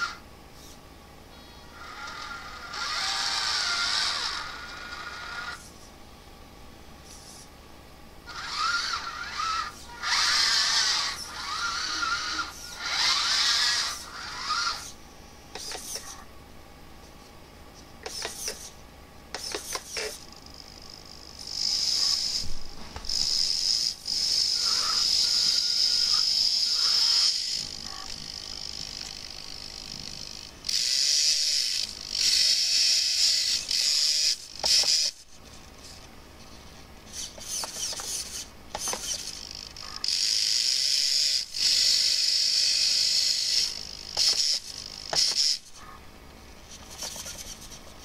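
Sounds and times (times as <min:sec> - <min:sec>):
small electric winch motor whining: 0:00.0 - 0:05.9, 0:08.2 - 0:16.3, 0:18.0 - 0:46.0, 0:46.6 - 0:48.0.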